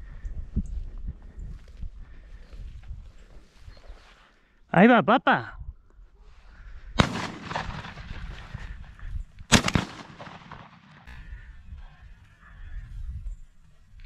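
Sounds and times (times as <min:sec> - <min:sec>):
shotgun shots with echo: 0:07.0 - 0:08.7, 0:09.5 - 0:11.1.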